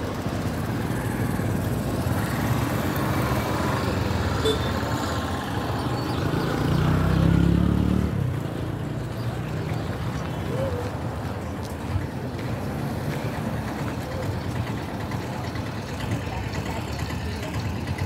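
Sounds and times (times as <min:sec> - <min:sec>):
road traffic engine noise: 0:00.0 - 0:18.0.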